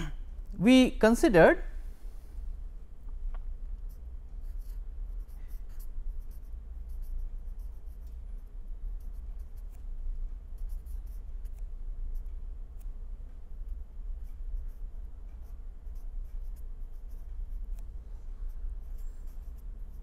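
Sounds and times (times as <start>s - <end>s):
low steady hum: 0.0s - 20.0s
pen writing on paper: 3.9s - 9.8s, 14.2s - 14.8s, 15.4s - 17.8s, 18.5s - 20.0s.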